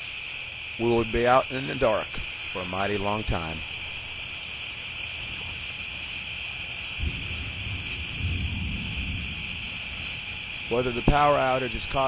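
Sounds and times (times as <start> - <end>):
crickets trilling: 0.0 - 12.0
low rumble: 7.0 - 10.7.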